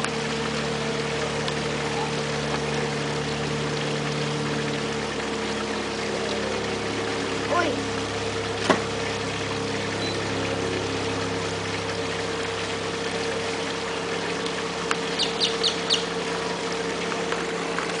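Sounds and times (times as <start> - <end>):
steady mechanical hum: 0.0 - 18.0
bird chirping: 15.1 - 16.1.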